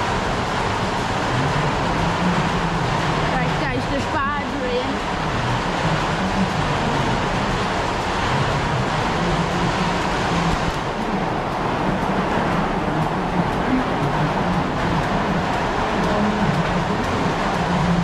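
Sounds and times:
faint steady whine: 0.0 - 18.0
milking machine vacuum noise: 0.0 - 18.0.

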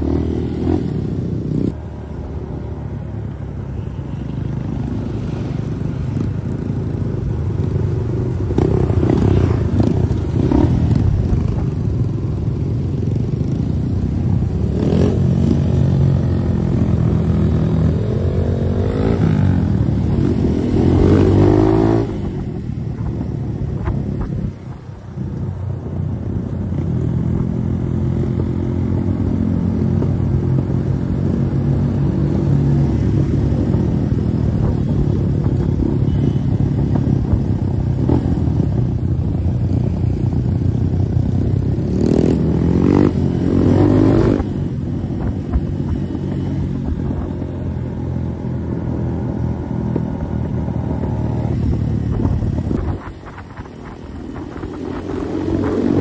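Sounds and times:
motorcycle engine revving: 26.8 - 56.0.

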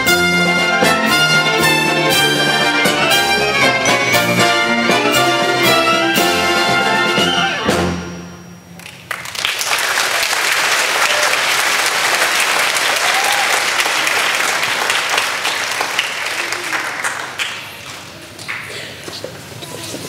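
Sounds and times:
audience applauding: 8.8 - 18.9.

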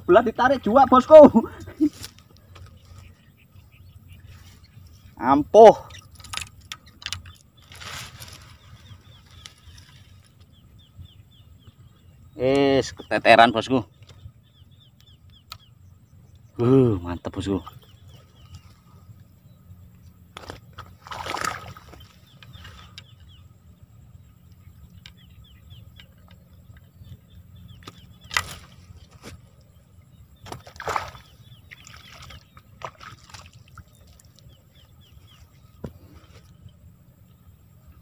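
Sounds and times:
water sloshing at bank: 20.3 - 23.2, 27.8 - 36.6.

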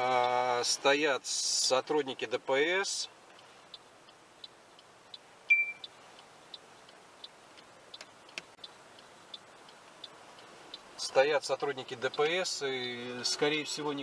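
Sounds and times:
turn signal ticking: 0.0 - 14.0
short high beep: 5.5 - 5.9.

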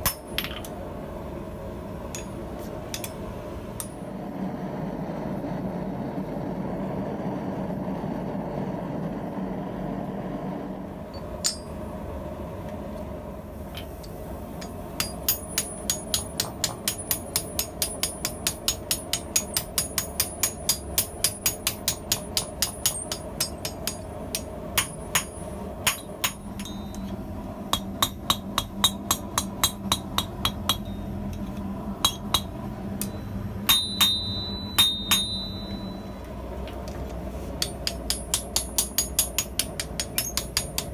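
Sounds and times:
hammer striking hot steel on anvil: 0.0 - 0.8, 2.0 - 4.1, 11.1 - 11.9, 13.9 - 36.2, 37.6 - 40.9
gas forge roaring: 0.0 - 40.9.

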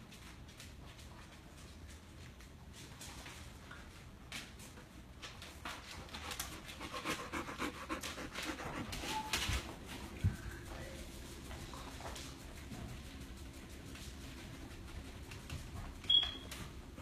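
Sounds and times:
dog panting quickly: 5.8 - 15.7.

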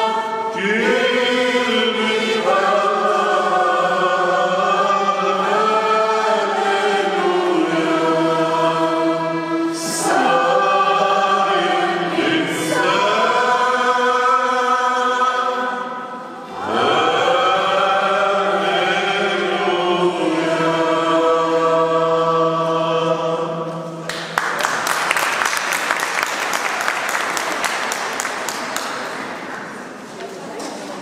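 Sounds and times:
choir singing a hymn: 0.0 - 24.2
audience applause: 24.1 - 29.9.

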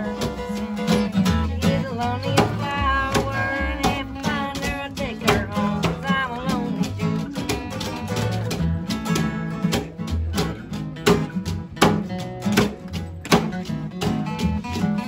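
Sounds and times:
person singing: 0.0 - 8.3
acoustic guitars strummed: 0.0 - 15.0.

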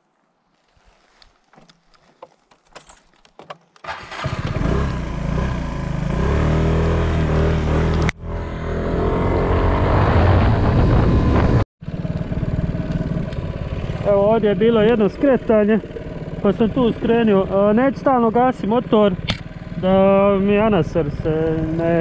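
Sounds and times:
motor scooter engine: 3.8 - 10.5, 11.1 - 22.0.

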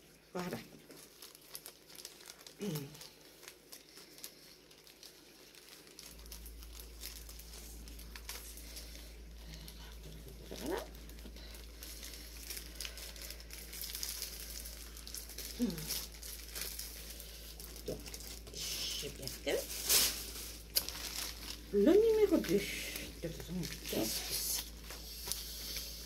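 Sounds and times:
low steady hum: 0.0 - 26.0
plastic packaging crinkling: 0.2 - 26.0.

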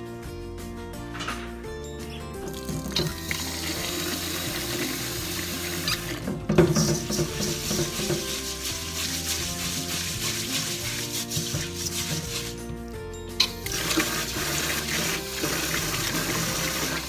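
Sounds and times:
background music: 0.0 - 17.0
tap water running into bowl: 2.4 - 12.4, 13.5 - 17.0
hands swishing wet rice: 6.7 - 12.8.

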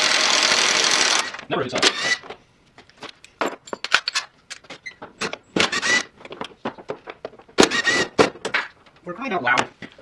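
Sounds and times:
cordless drill whirring: 7.6 - 8.1.

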